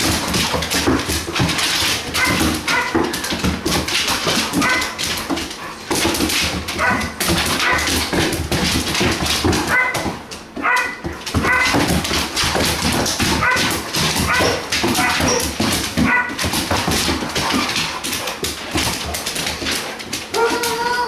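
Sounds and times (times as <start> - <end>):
claws clicking on hardwood floor: 0.0 - 21.0
dogs whining and yipping: 14.3 - 16.3, 20.3 - 21.0.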